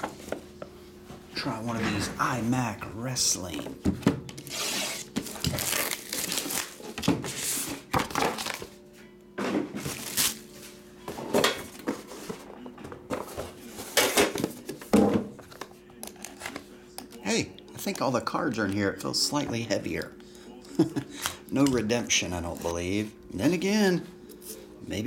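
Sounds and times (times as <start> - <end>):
plastic wrap crinkling and tearing: 4.5 - 8.7, 9.8 - 10.4.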